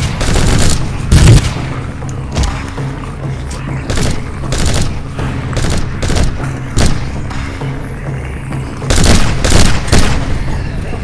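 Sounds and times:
rifle shots: 0.0s - 1.6s, 3.9s - 5.0s, 5.6s - 7.0s, 8.9s - 10.3s
background music: 0.0s - 11.0s.

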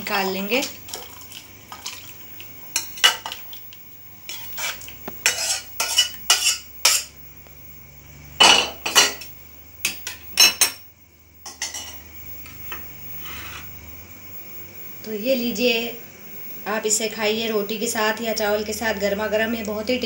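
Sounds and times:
spoon scraping and clinking on pan: 4.3s - 7.1s, 11.5s - 12.0s.

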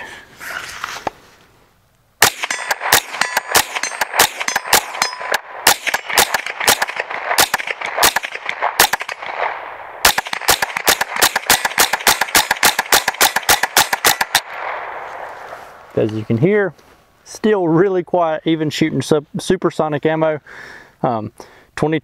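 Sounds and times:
bullets pinging off steel target: 2.2s - 9.3s
suppressed rifle cracks: 2.2s - 16.0s.

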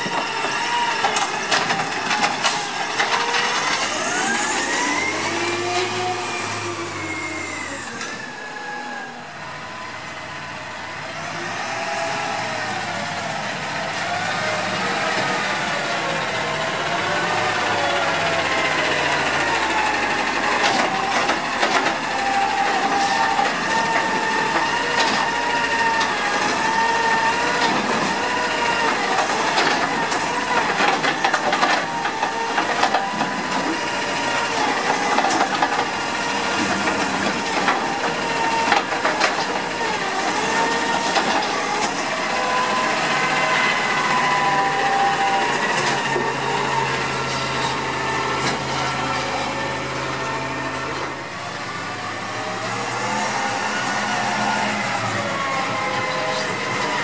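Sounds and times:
hydraulic whine: 0.0s - 13.3s
truck engine hum: 0.0s - 57.0s.

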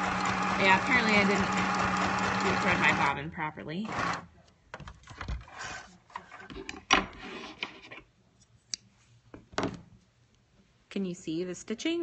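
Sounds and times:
sewing machine clicks and clatter: 0.0s - 3.1s.

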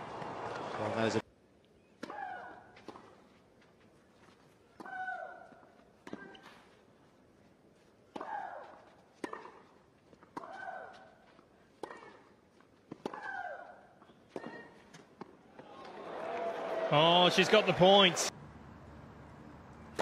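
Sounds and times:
racquets striking tennis ball: 8.1s - 10.8s.

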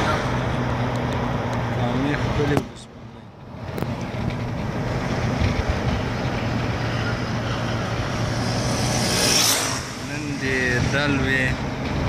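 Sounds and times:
vehicle engine hum and road noise: 0.0s - 12.0s
rushing noise: 4.7s - 12.0s.

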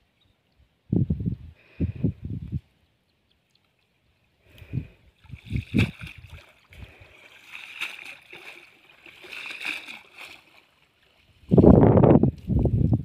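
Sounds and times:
water splashing: 5.2s - 11.4s.

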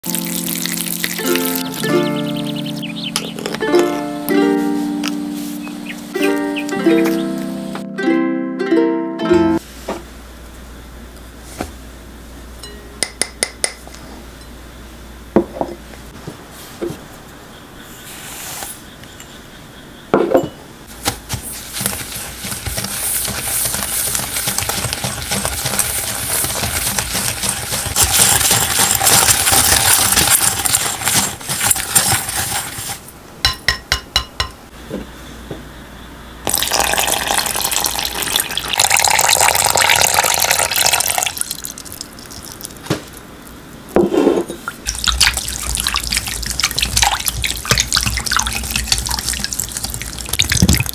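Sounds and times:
water pouring into bowl: 0.0s - 1.9s, 36.5s - 42.8s, 44.9s - 50.9s
glass clinking on glass: 20.2s - 20.6s
spoon stirring and scraping bowl: 21.4s - 33.1s, 44.0s - 50.9s.

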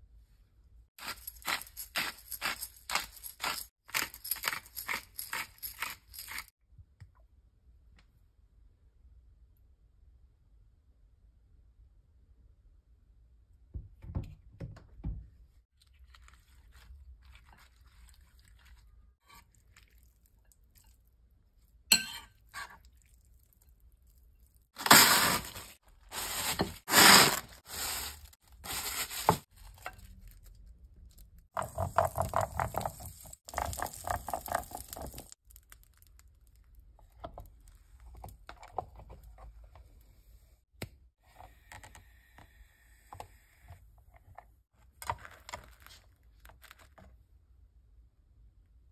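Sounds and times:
plastic film crinkling: 24.8s - 29.5s
rustling and scraping: 24.8s - 30.1s.

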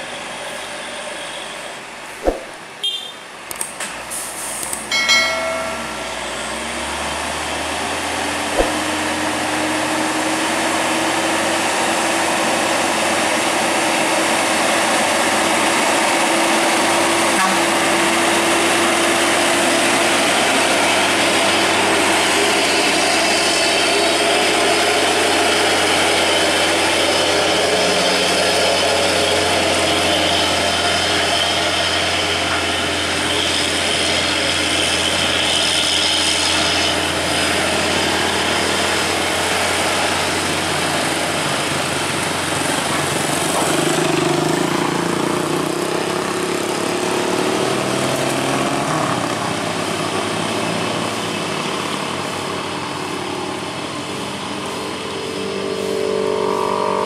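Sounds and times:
truck diesel engine labouring: 0.0s - 57.0s
truck horn toot: 2.8s - 3.2s, 17.3s - 17.9s.

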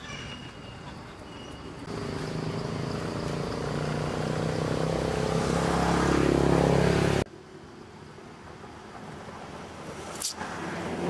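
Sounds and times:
vehicle engine running: 1.9s - 7.3s.

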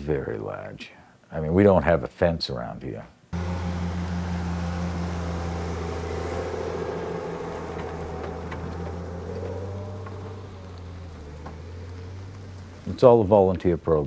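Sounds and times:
higher tone: 3.4s - 11.8s
engine running steadily: 3.4s - 12.9s.

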